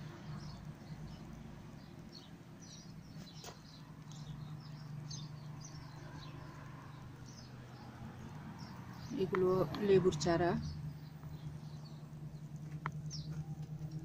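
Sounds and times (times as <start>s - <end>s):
small birds chirping: 0.0s - 14.0s
steady low hum: 3.7s - 14.0s.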